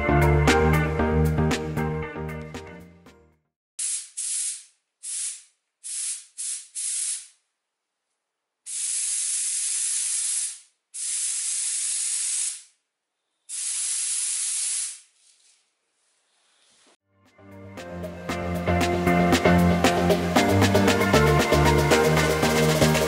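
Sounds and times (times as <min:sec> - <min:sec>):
spray gun hissing: 0:03.8 - 0:07.4, 0:08.7 - 0:12.8, 0:13.5 - 0:15.2.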